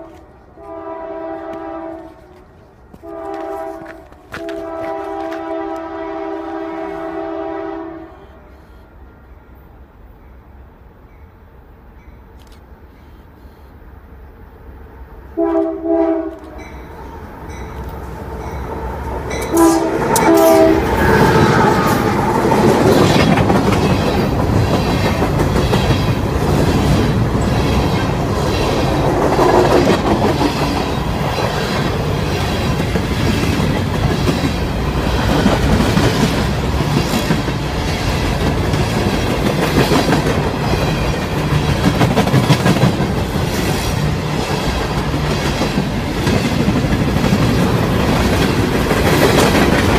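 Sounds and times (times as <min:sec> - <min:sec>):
train wheels rumbling and clacking: 0:00.0 - 0:07.0, 0:15.6 - 0:49.9
train horn blasts: 0:00.0 - 0:08.7, 0:15.4 - 0:16.8, 0:19.3 - 0:22.1.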